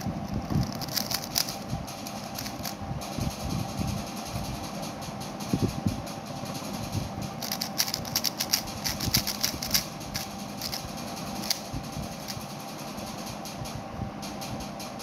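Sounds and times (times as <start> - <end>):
puzzle cube clicking: 0.0 - 2.8, 7.4 - 11.6
steady low hum: 0.0 - 15.0.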